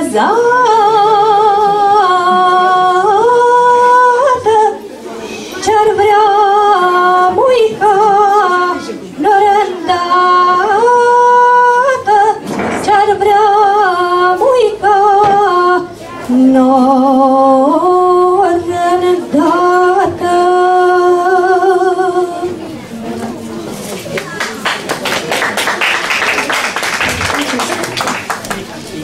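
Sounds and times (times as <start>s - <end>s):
woman singing unaccompanied: 0.0s - 4.8s, 5.6s - 22.6s.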